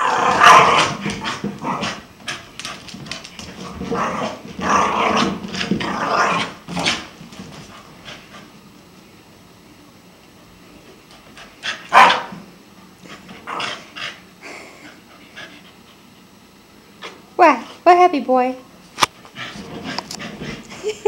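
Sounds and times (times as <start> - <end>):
dog growling in play: 0.0 - 2.5, 3.5 - 7.1, 13.0 - 14.3.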